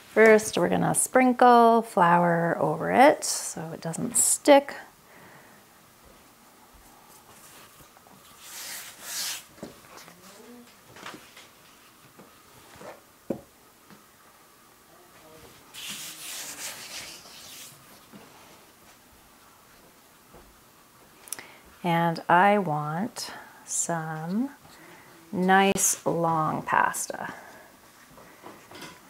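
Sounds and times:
hands brushing flour over dough: 15.6 - 18.5.

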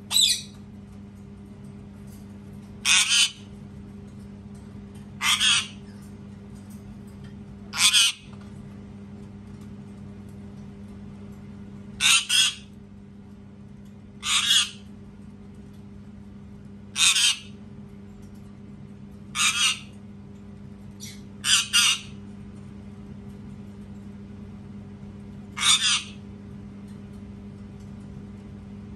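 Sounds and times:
parakeet screeching: 0.1 - 0.5, 2.8 - 3.4, 5.2 - 5.8, 7.8 - 8.3, 12.0 - 12.7, 14.2 - 14.8, 17.0 - 17.6, 19.4 - 19.9, 21.0 - 22.2, 25.6 - 26.2.

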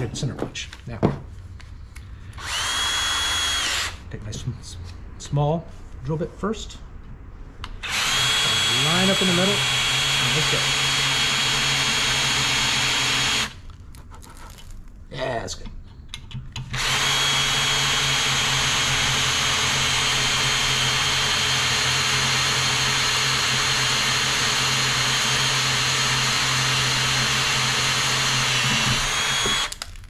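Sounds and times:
cordless drill boring through metal: 2.4 - 4.0, 7.8 - 13.6, 16.7 - 29.9.

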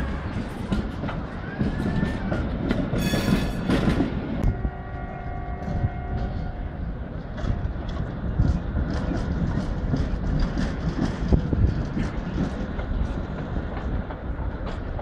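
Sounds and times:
tram wheels rolling over rails: 0.0 - 15.0.

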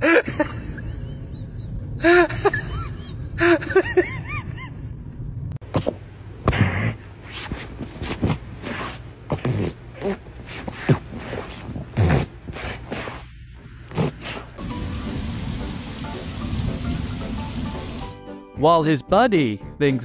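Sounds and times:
dog sniffing and snorting: 6.5 - 14.6.

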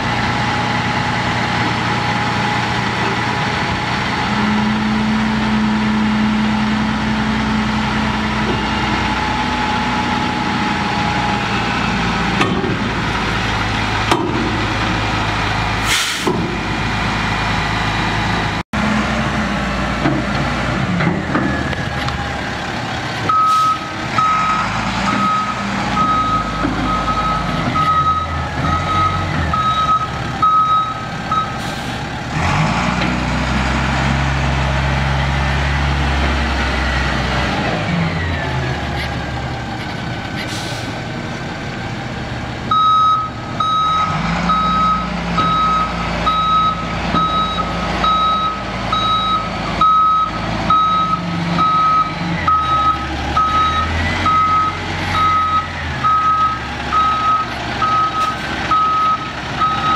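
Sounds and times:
diesel truck engine revving: 0.0 - 59.9
backup alarm beeping: 42.7 - 59.9.

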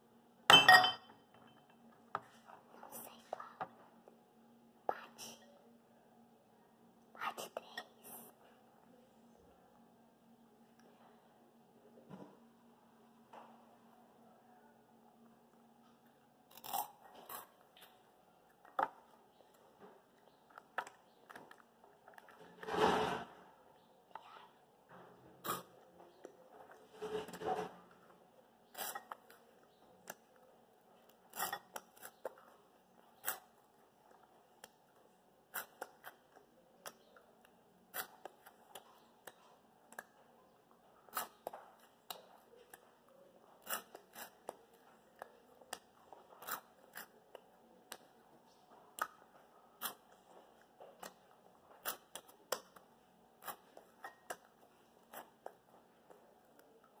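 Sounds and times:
crunchy snacks being chewed: 16.5 - 18.0.

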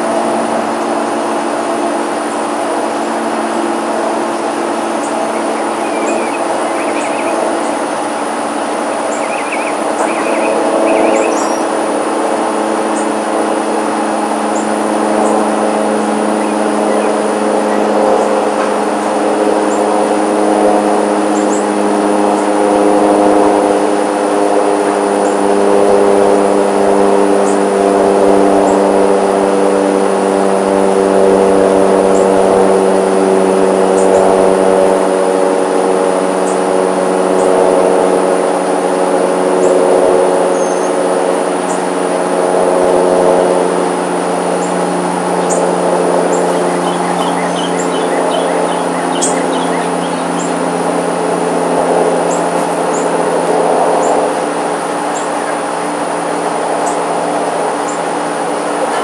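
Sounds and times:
aircraft engine drone: 0.0 - 59.0.

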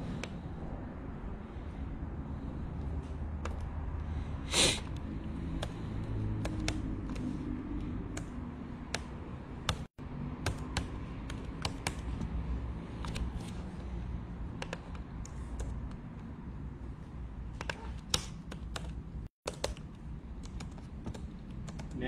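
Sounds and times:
keyboard key clicks: 14.6 - 16.0.

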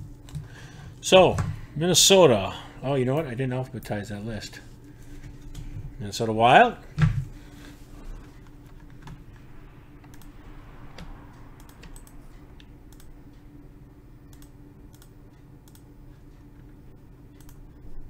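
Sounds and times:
low hum: 0.0 - 18.0
keyboard clicks: 11.6 - 12.2, 14.3 - 15.9, 17.3 - 17.7.

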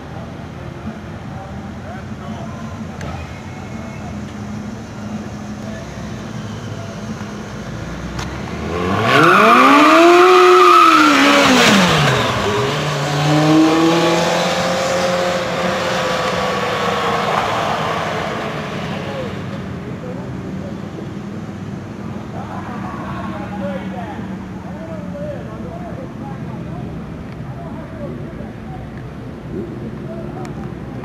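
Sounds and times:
engine revving: 8.1 - 19.6.

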